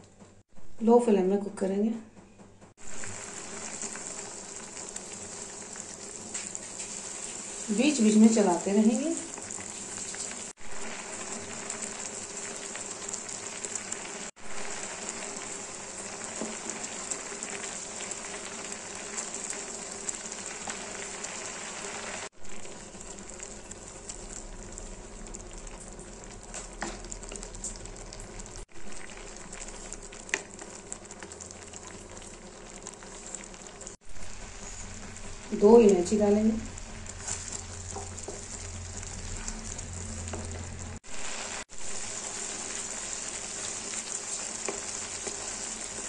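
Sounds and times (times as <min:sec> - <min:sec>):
milk mixture bubbling and sizzling: 0:02.7 - 0:46.0
spatula stirring in pan: 0:02.9 - 0:08.4, 0:09.2 - 0:35.5, 0:36.7 - 0:46.0.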